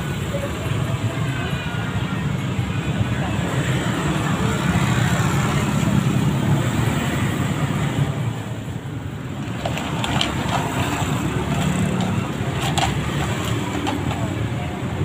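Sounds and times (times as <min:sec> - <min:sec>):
road traffic rumble: 0:00.0 - 0:15.0
plastic bag crackling: 0:09.4 - 0:14.4.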